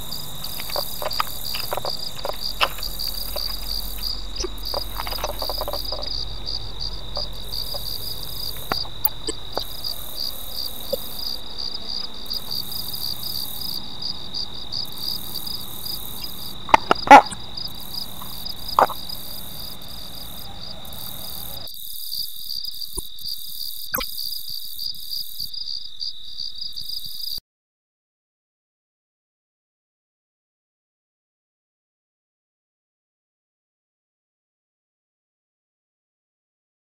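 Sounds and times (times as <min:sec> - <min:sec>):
insects trilling: 0:00.0 - 0:27.4.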